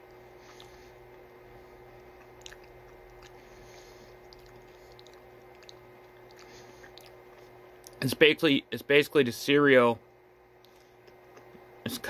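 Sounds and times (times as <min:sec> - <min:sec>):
faint hum: 0:00.0 - 0:12.0
chewing crunchy bar: 0:01.9 - 0:08.0.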